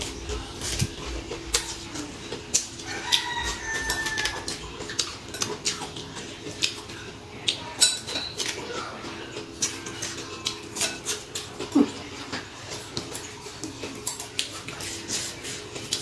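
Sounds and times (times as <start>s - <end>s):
crunchy chewing: 0.0s - 16.0s
rooster crowing: 2.8s - 4.6s.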